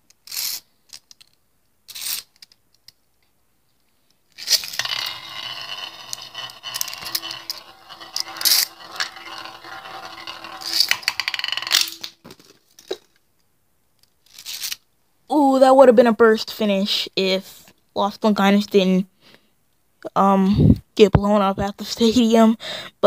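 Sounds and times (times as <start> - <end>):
spinning tops scraping and rattling: 1.9 - 2.4, 4.3 - 12.9, 14.2 - 14.8
spinning tops whirring: 4.4 - 12.2
spinning tops clacking together: 4.4 - 12.4.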